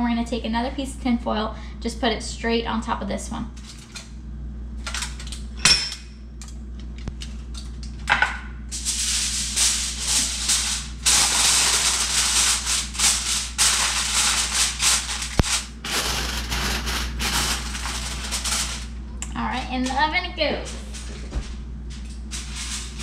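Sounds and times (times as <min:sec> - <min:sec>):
aluminium foil crinkling: 0:08.8 - 0:19.0, 0:22.0 - 0:23.0.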